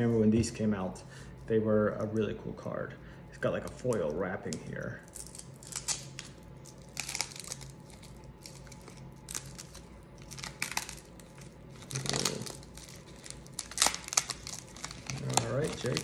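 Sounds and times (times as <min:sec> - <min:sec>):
foil wrapper tearing and crinkling: 0:05.1 - 0:16.0.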